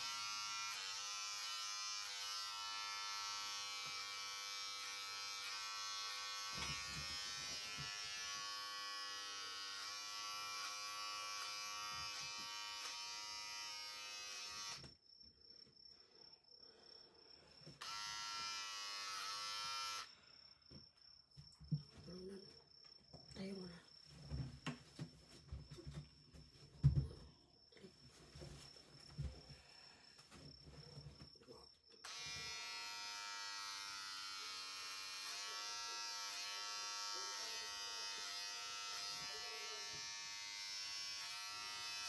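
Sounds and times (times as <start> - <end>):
electric hair clippers buzzing: 0.0 - 14.9, 17.8 - 20.1, 32.0 - 42.0.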